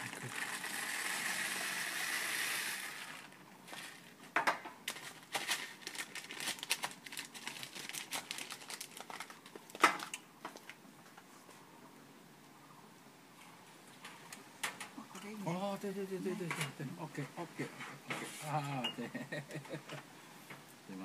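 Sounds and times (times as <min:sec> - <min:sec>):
tea leaves pouring into paper: 0:00.0 - 0:04.0, 0:04.9 - 0:09.5
paper crinkling and crackling: 0:04.8 - 0:10.8.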